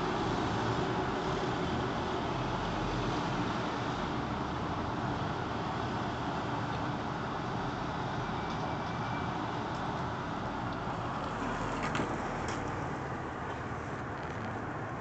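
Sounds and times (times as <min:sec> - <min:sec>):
passing cars: 0:09.4 - 0:15.0.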